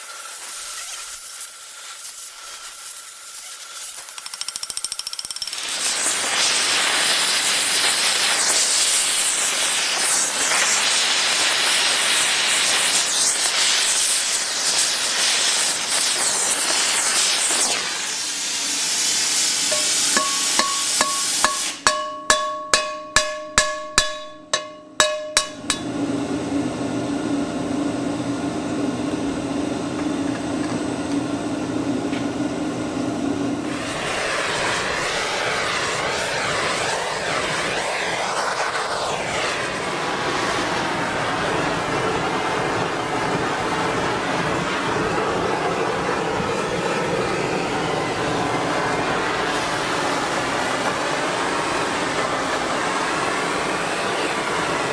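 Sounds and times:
gas torch flame hissing: 0:00.0 - 0:22.0, 0:22.8 - 0:54.9
hammer blows on metal: 0:19.7 - 0:26.0
pan ringing: 0:19.7 - 0:26.0.

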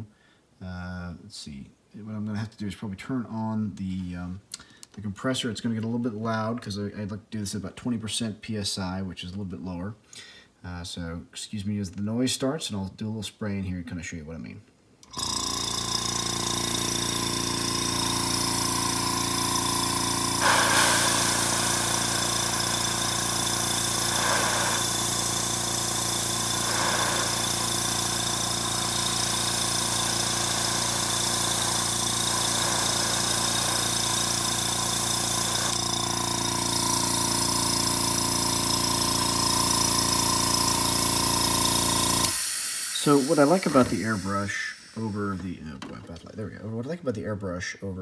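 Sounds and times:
compressor humming: 0:15.0 - 0:46.5
airbrush spraying hiss: 0:20.0 - 0:38.0, 0:41.6 - 0:45.5.

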